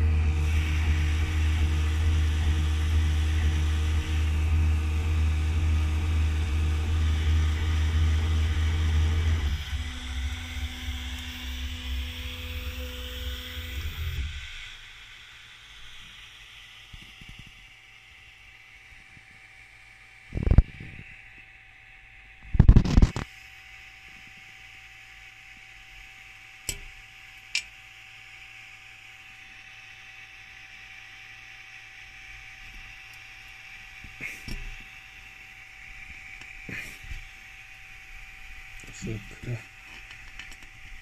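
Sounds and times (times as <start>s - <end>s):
stepper motors: 0.0s - 17.8s, 29.2s - 41.0s
cooling fan hum: 0.0s - 41.0s.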